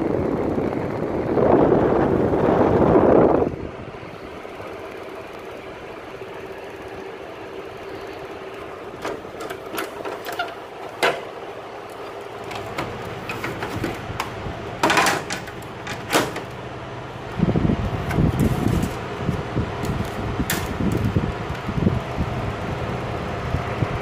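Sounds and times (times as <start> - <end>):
wind buffeting microphone: 0.0 - 4.6, 17.2 - 24.0
air conditioner humming: 0.0 - 24.0
scattered clicks and knocks: 9.0 - 16.6, 19.8 - 21.6.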